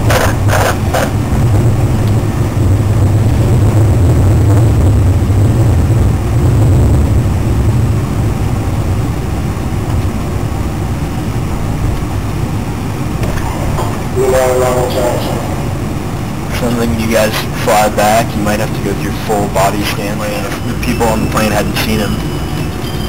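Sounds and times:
train rumbling on track: 0:00.0 - 0:23.0.

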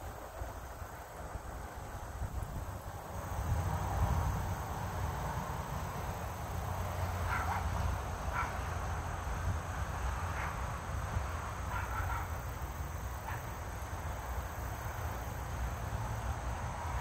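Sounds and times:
distant animal calls: 0:11.7 - 0:12.4.

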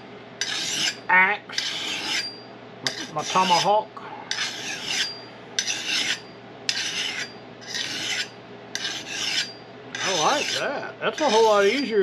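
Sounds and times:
sharpener rasping on axe edge: 0:00.4 - 0:01.0, 0:01.6 - 0:03.7, 0:04.3 - 0:10.6.

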